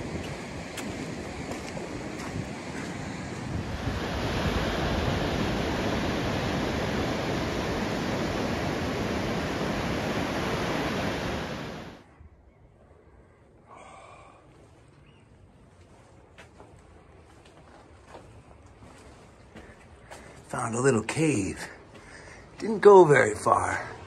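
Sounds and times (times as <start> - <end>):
waves breaking on beach: 0.0 - 12.0.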